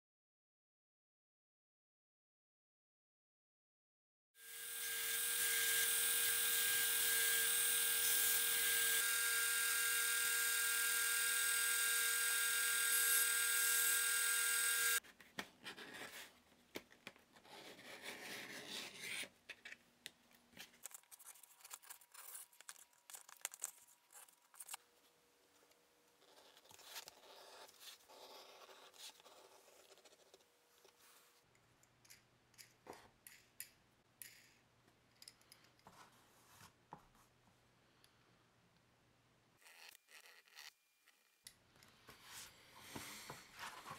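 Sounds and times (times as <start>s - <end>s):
belt grinder sanding leather: 4.4s - 15.0s.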